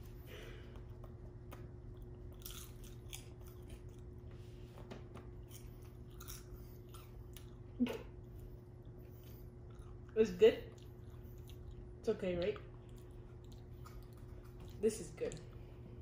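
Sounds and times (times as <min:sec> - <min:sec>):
person chewing crunchy snack: 0:01.8 - 0:04.3, 0:05.3 - 0:12.0, 0:12.7 - 0:14.8.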